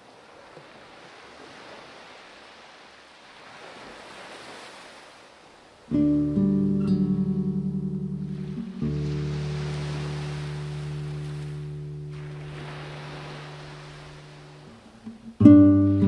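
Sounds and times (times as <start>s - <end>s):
ocean waves washing: 0.0s - 16.0s
classical guitar plucking: 5.9s - 16.0s.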